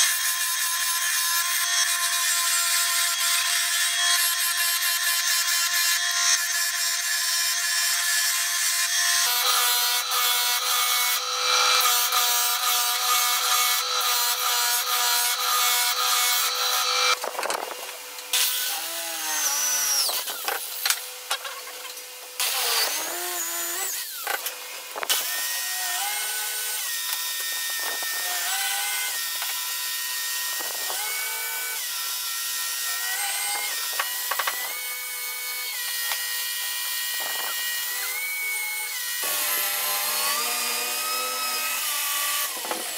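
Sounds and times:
wood being sanded: 0:00.0 - 0:17.2
electric drill boring wood: 0:00.0 - 0:17.7, 0:18.3 - 0:42.9.

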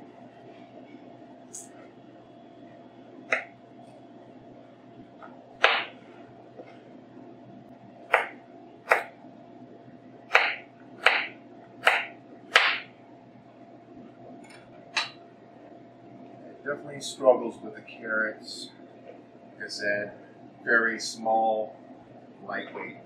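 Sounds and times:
knife chopping on cutting board: 0:05.6 - 0:06.0, 0:08.1 - 0:09.1, 0:10.3 - 0:12.9.

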